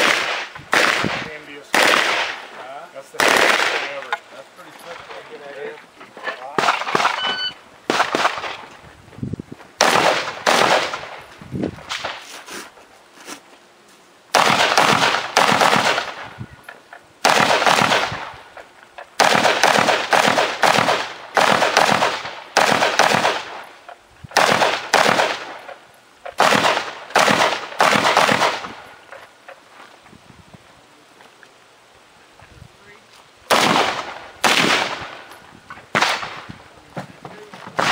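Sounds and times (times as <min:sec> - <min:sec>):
rapid gunshots with echo: 0:00.0 - 0:02.5, 0:03.1 - 0:04.0, 0:07.9 - 0:08.6, 0:09.8 - 0:11.2, 0:14.3 - 0:16.3, 0:17.2 - 0:18.4, 0:19.2 - 0:23.6, 0:24.4 - 0:25.6, 0:26.4 - 0:28.8, 0:33.5 - 0:35.3.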